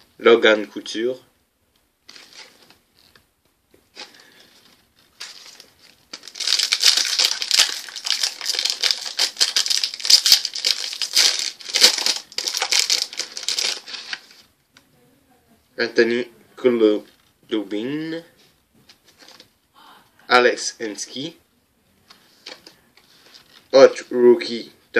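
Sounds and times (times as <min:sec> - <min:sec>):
plastic wrapper crinkling: 0:02.0 - 0:03.3, 0:03.9 - 0:14.5.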